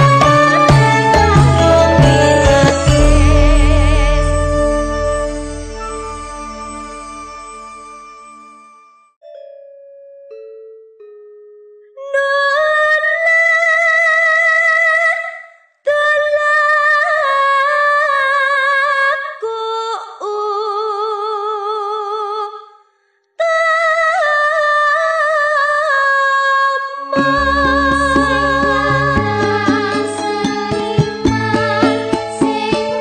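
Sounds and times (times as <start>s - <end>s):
falling instrument notes: 0.0s - 9.6s, 27.2s - 33.0s
woman singing high wavering phrases: 12.0s - 22.6s, 23.4s - 32.1s.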